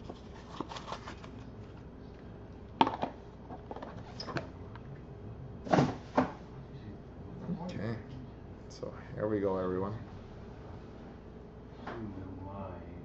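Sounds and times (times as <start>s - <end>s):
cards rustling: 0.0s - 1.9s.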